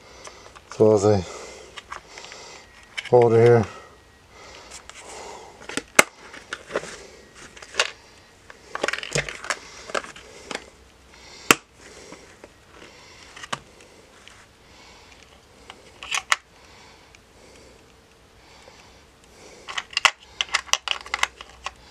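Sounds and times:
plastic cases clicking and knocking: 5.6 - 8.0, 8.6 - 10.6, 19.6 - 21.8
small tools rattling: 8.7 - 10.6.

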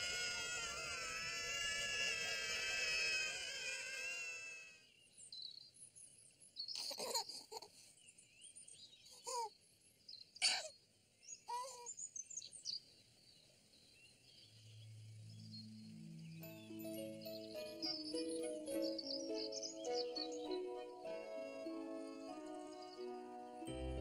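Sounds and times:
children calling out: 0.0 - 4.8
birds chirping: 0.0 - 24.0.

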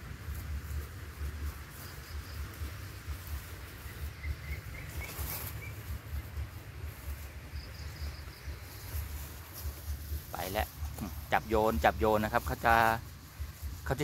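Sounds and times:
low microphone rumble: 0.0 - 14.0
small birds chirping: 0.3 - 14.0
brief rustle: 4.8 - 5.8.

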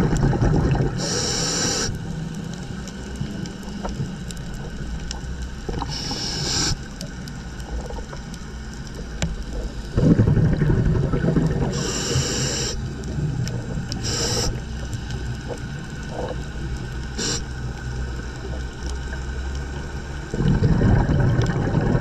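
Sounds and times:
exhaled bubbles bursting: 0.0 - 1.2, 9.0 - 14.8, 20.2 - 22.0
regulator inhalation hisses: 1.0 - 2.0, 5.8 - 6.9, 11.6 - 12.9, 14.0 - 14.8, 17.2 - 17.5.

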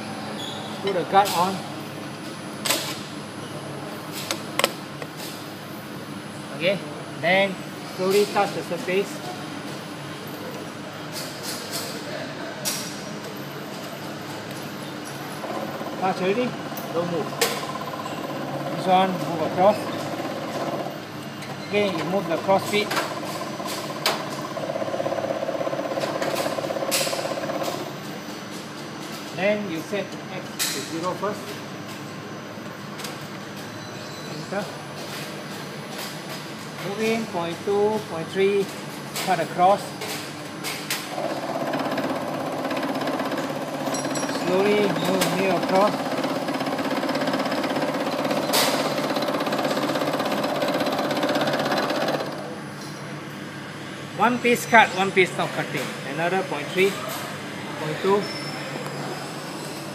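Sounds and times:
milling machine running: 41.1 - 52.6.

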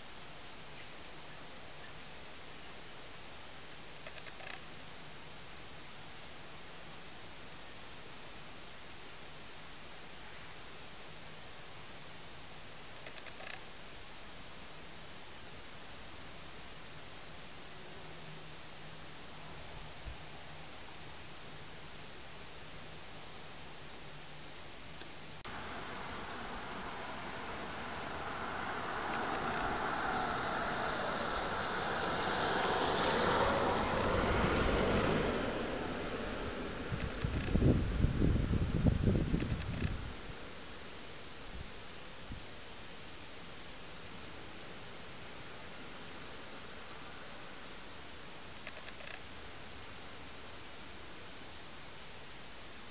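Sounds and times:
crickets trilling: 0.0 - 52.9
broad rushing noise: 25.5 - 40.2.

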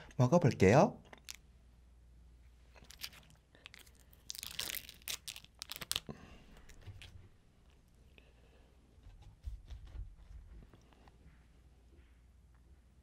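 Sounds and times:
plastic lid peeling and crinkling: 2.8 - 6.1.

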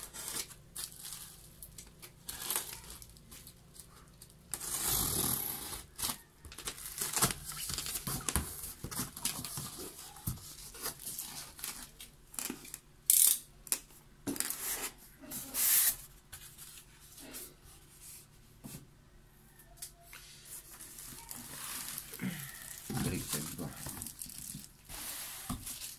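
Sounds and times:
box cutter slitting packing tape: 4.5 - 8.4.

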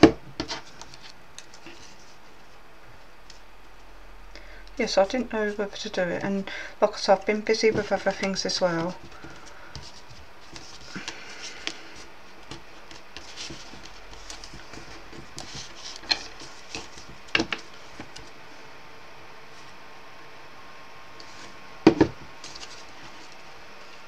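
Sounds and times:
card rustling and scraping: 0.4 - 2.5, 7.7 - 18.3, 22.4 - 24.0.

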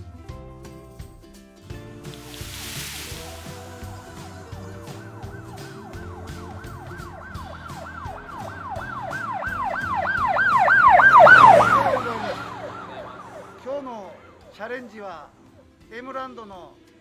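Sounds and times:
siren wailing: 4.1 - 15.1.

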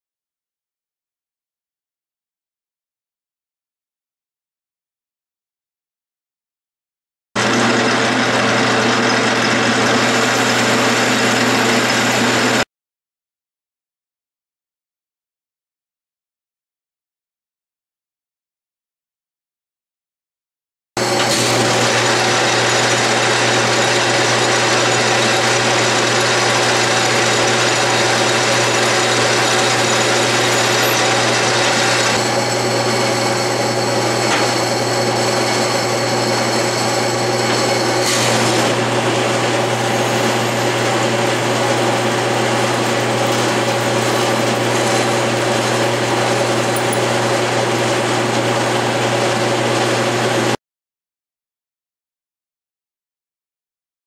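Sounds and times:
metal lathe running: 7.4 - 12.6, 21.0 - 50.6
drilling hiss: 24.7 - 34.8.

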